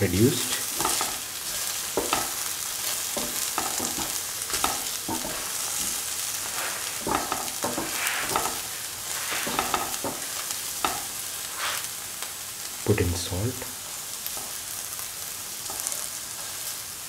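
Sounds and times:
okra sizzling in a hot pan: 0.0s - 17.0s
spatula stirring and scraping: 0.5s - 12.0s.

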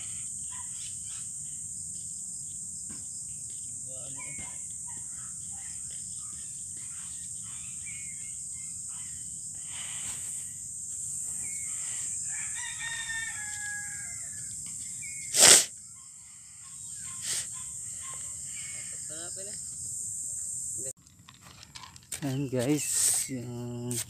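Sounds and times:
insects chirring: 0.0s - 24.0s
rooster crowing: 11.8s - 14.5s.

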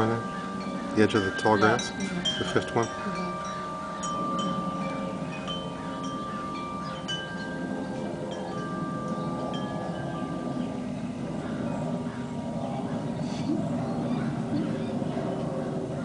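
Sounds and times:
wind chimes ringing: 0.0s - 12.6s.

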